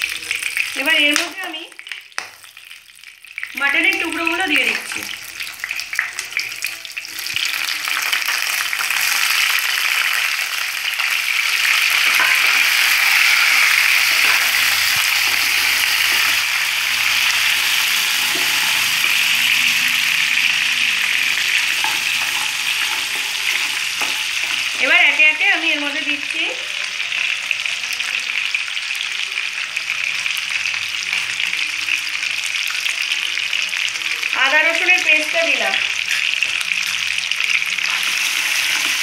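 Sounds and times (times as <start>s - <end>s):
meat sizzling in hot oil: 0.0s - 39.0s
spatula scraping a pan: 11.6s - 24.8s.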